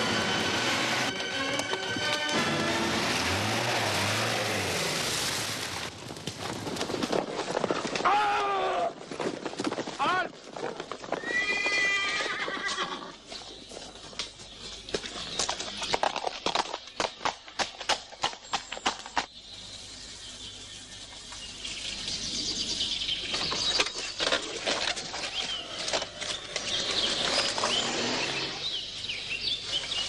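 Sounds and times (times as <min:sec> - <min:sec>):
galloping hoofbeats: 0:08.9 - 0:19.3
horse whinnying: 0:11.2 - 0:13.2.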